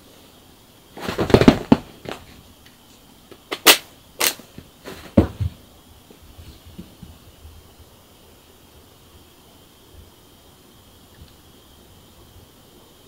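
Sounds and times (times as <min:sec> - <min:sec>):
dull thud: 0:01.0 - 0:02.3, 0:04.9 - 0:05.6
cat paws thumping and scrabbling: 0:01.0 - 0:02.4, 0:04.5 - 0:07.3.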